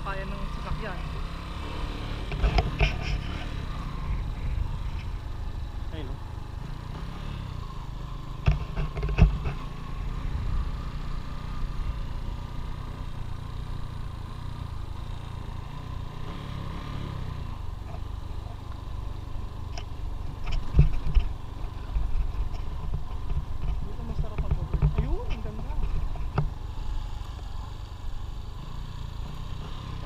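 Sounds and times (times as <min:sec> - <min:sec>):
motorcycle engine rumble: 0:00.0 - 0:30.0
sharp thumps from bumps: 0:01.9 - 0:05.1, 0:08.3 - 0:09.7, 0:19.7 - 0:26.7.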